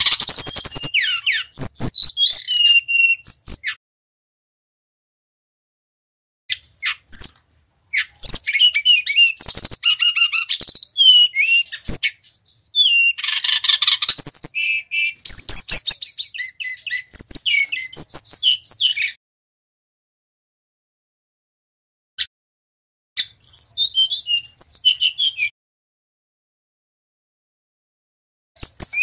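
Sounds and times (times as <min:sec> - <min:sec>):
bird song with whistles and trills: 0:00.0 - 0:03.8, 0:06.5 - 0:19.2, 0:23.2 - 0:25.6, 0:28.6 - 0:29.0.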